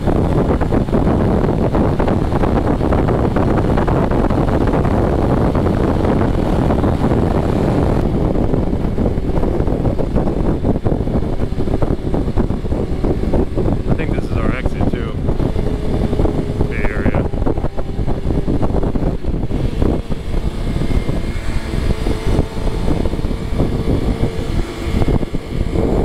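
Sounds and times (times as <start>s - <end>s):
motorcycle engine: 0.0s - 26.0s
road noise: 0.0s - 26.0s
wind rushing over microphone: 0.0s - 26.0s.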